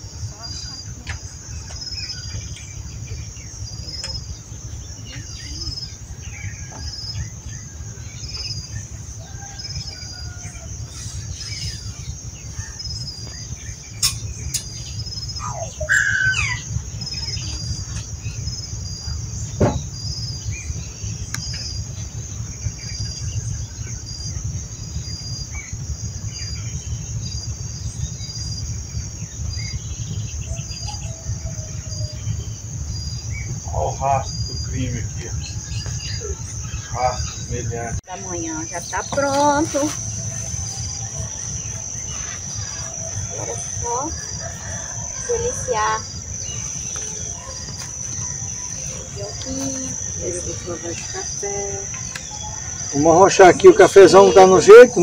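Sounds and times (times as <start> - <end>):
bird chirps: 0.0 - 55.0
high-pitched insect chorus: 0.0 - 55.0
low rumble: 0.0 - 55.0
pulsing insect chirp: 0.0 - 55.0
sharp knocks: 19.6 - 19.9.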